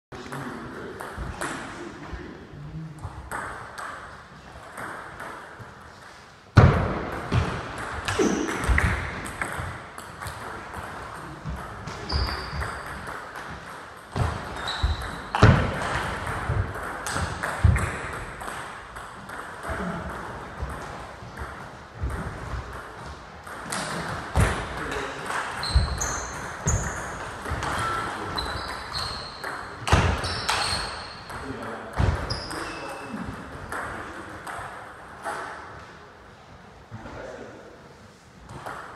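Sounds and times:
sports shoes squeaking: 11.5 - 13.6, 14.2 - 16.0, 25.5 - 33.3.

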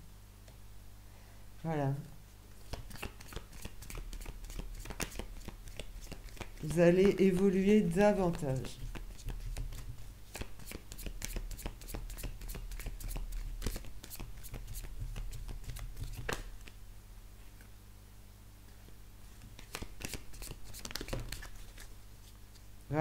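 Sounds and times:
cards being shuffled: 2.6 - 16.8, 19.4 - 22.7.

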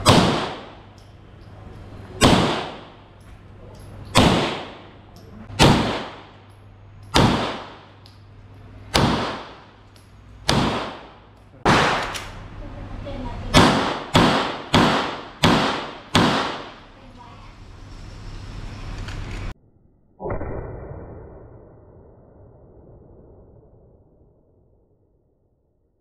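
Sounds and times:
pistol shots with echo: 0.0 - 0.9, 2.2 - 3.0, 4.1 - 6.5, 7.1 - 8.0, 8.9 - 9.8, 10.4 - 12.2, 13.5 - 16.8.

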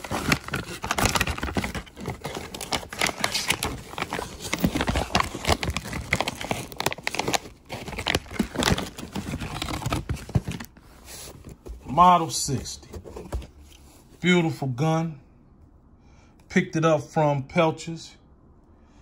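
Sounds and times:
plastic bag crinkling: 0.0 - 10.8.

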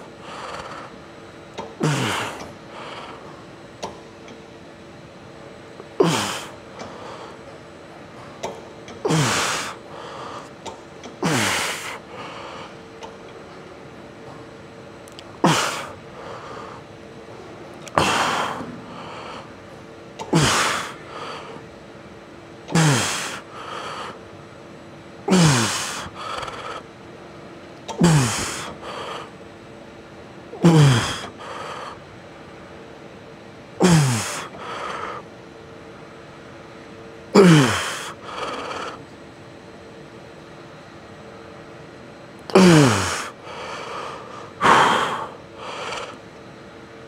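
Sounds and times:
man breathing hard: 0.0 - 1.0, 9.1 - 10.6, 15.4 - 16.9, 18.0 - 19.6, 20.3 - 21.6, 22.8 - 24.2, 28.0 - 29.4, 30.6 - 32.0, 33.8 - 35.3, 37.4 - 39.0, 42.6 - 46.2
man grunting with effort: 6.0 - 6.5, 9.1 - 9.8, 15.4 - 15.9, 20.4 - 21.0, 22.7 - 23.4, 25.3 - 26.1, 28.0 - 28.7, 30.6 - 31.4, 33.8 - 34.5, 37.4 - 38.4, 42.5 - 43.4, 44.6 - 45.3.

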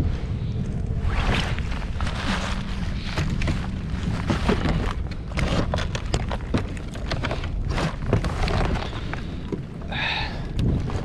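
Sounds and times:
gear knocking and clattering: 1.6 - 9.6.

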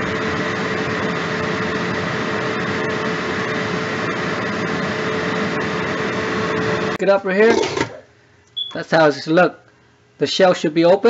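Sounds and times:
pot steaming: 0.0 - 8.0
stove hum: 0.0 - 11.0.

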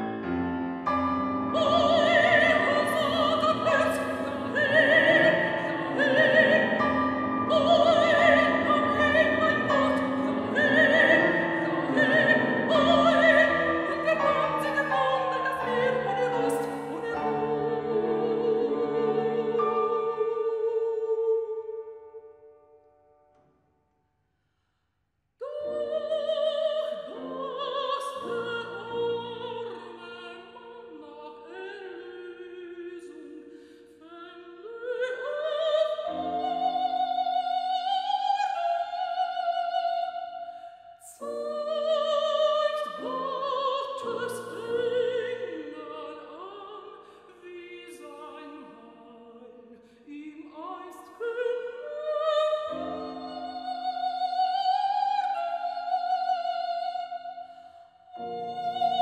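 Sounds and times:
piano accompaniment: 0.0 - 20.8
soprano singing: 0.0 - 22.5, 25.4 - 59.0.

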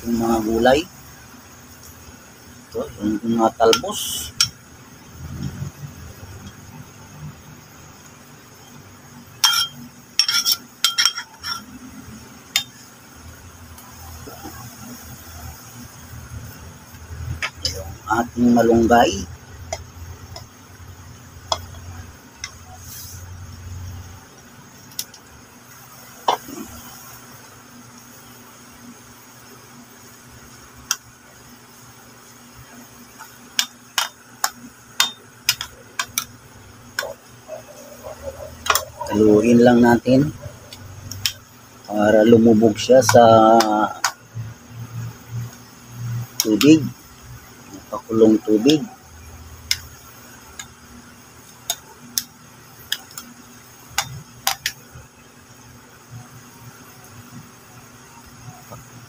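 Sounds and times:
water boiling: 0.0 - 59.0
metal spoon clinking in pot: 9.4 - 11.7.

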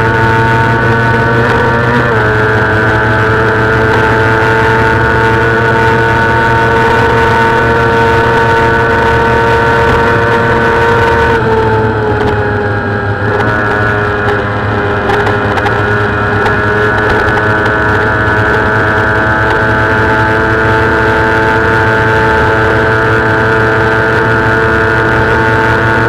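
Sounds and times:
motorcycle engine at high revs: 0.0 - 26.0.

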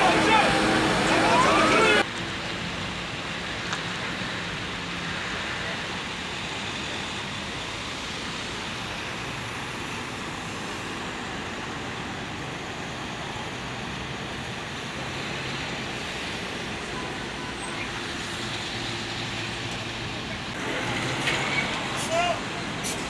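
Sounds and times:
idling engines humming: 0.0 - 23.0
traffic hiss: 0.0 - 23.0.

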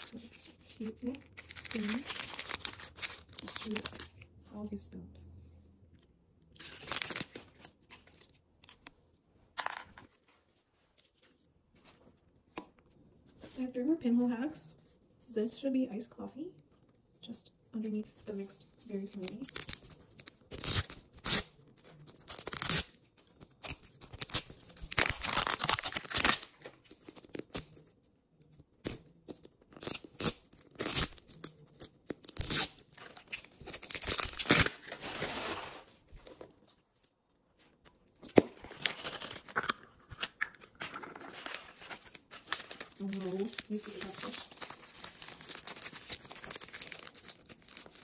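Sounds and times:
plastic wrapper tearing and crinkling: 0.0 - 4.2, 6.6 - 8.9, 18.8 - 27.8, 28.8 - 35.9, 38.3 - 48.0.

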